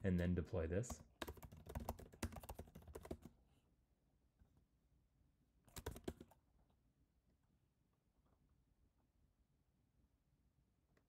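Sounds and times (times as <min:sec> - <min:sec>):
typing on computer keyboard: 0:01.0 - 0:03.3, 0:05.7 - 0:06.4.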